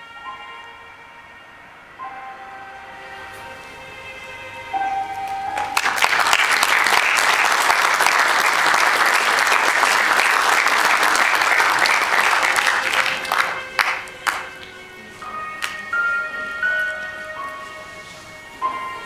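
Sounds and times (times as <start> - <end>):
film closing music: 1.8 - 19.0
audience clapping: 5.5 - 15.0, 15.6 - 15.9.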